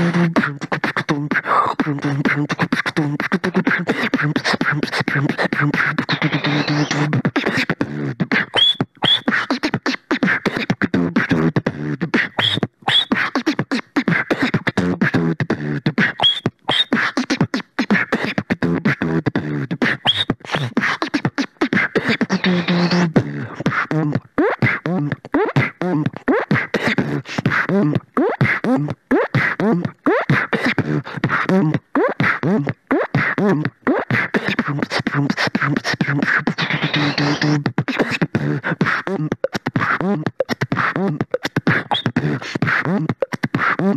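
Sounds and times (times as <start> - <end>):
person beatboxing: 0.0 - 43.9
whistle-like vocal slides: 8.3 - 10.4, 12.2 - 13.9, 16.0 - 17.4, 19.8 - 23.1, 36.3 - 38.2, 40.4 - 43.3.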